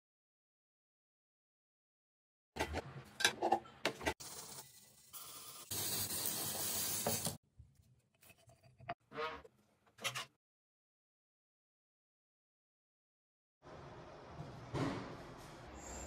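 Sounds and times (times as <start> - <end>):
aerosol spray paint hiss: 5.2 - 7.4.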